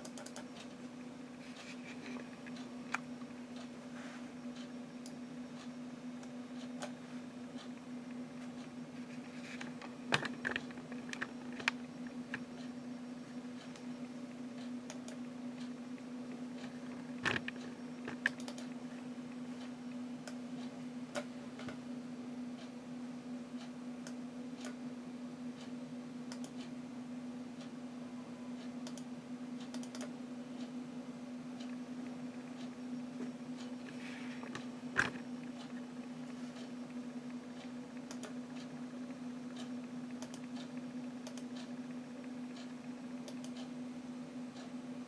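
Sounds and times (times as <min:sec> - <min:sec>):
computer mouse clicks: 0:00.0 - 0:00.7, 0:14.6 - 0:15.7, 0:16.6 - 0:18.8, 0:26.3 - 0:26.7, 0:28.6 - 0:30.1, 0:37.6 - 0:38.7, 0:39.5 - 0:41.7, 0:42.5 - 0:43.7
low computer hum: 0:00.0 - 0:45.0.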